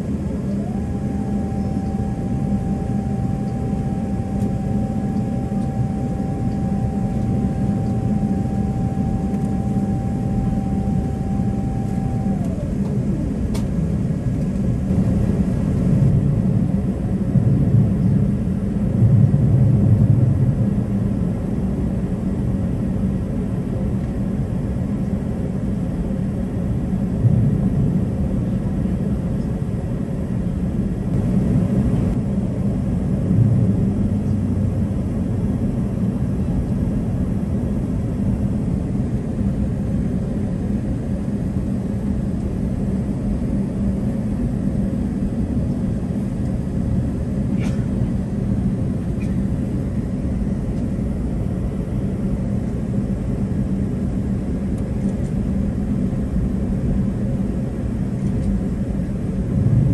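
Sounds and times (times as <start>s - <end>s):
airliner cabin rumble and hum: 0.0s - 59.9s.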